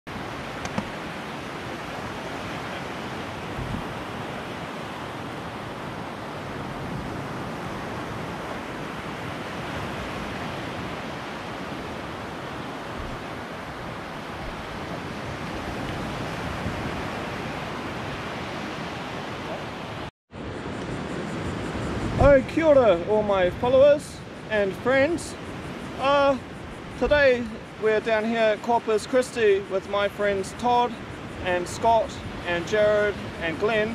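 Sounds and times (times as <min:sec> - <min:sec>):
surf breaking on beach: 0:00.1 - 0:20.1
wind: 0:00.1 - 0:33.9.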